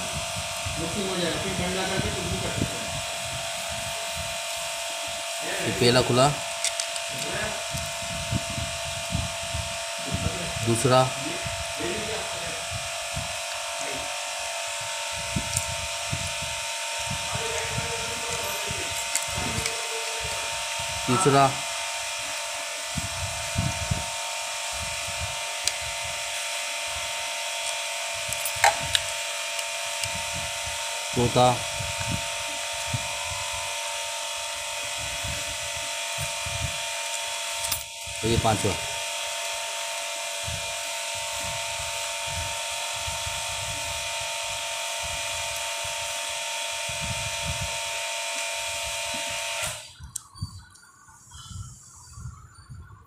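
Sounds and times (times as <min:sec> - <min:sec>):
machine hum with hiss: 0:00.0 - 0:50.0
screwdriver scraping screws: 0:06.0 - 0:08.0, 0:18.3 - 0:20.2.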